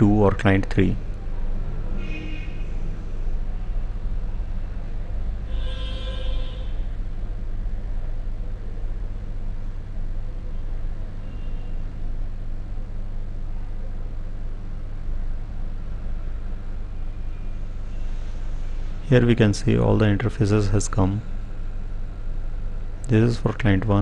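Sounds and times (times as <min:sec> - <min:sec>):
low electrical hum with hiss: 0:00.0 - 0:24.0.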